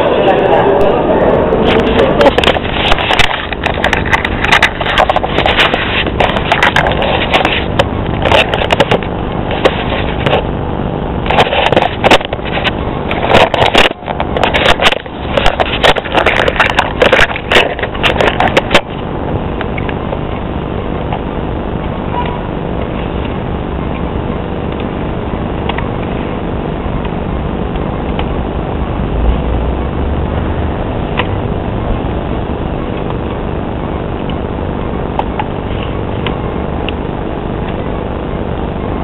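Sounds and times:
steady background noise: 0:00.0 - 0:39.0
camera handling noise: 0:01.7 - 0:10.4, 0:11.3 - 0:19.0.

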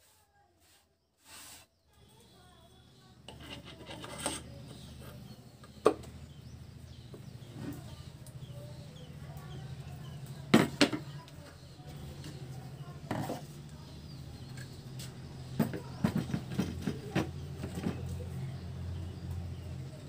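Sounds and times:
metal parts rubbing and scraping: 0:03.2 - 0:05.3.

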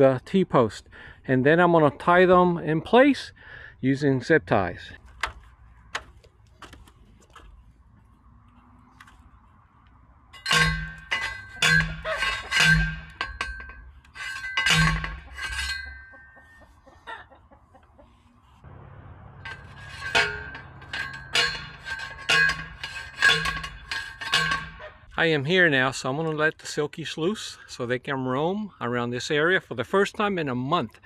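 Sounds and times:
post driver clanging on steel: 0:10.4 - 0:16.6, 0:19.4 - 0:25.1.

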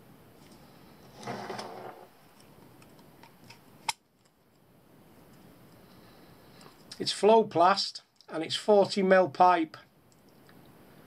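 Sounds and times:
plastic pipe fittings scraping: 0:01.1 - 0:02.1.

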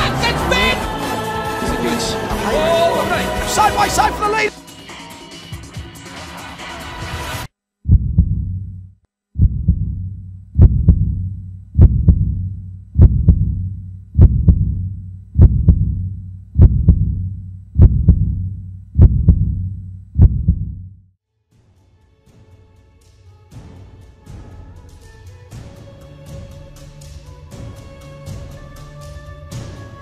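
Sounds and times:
heartbeat double thump: 0:07.8 - 0:08.8, 0:09.4 - 0:21.0.

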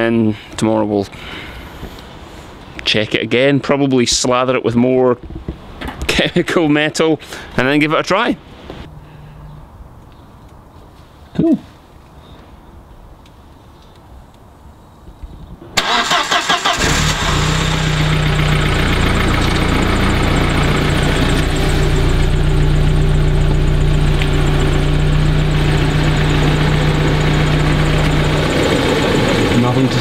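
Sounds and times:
starter motor cranking: 0:15.8 - 0:21.5
car engine idling: 0:15.8 - 0:30.0.

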